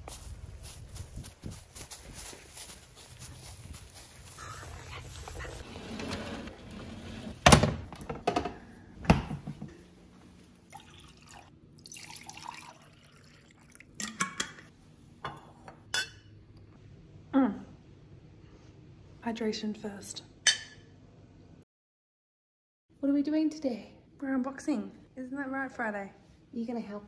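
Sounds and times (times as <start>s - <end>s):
water poured into a glass: 10.7s - 14.0s.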